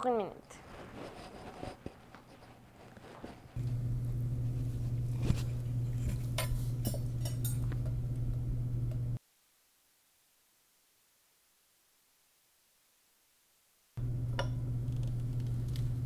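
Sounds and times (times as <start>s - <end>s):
steady low hum: 2.4s - 9.2s, 14.0s - 16.0s
fork and knife clinking: 6.0s - 7.9s.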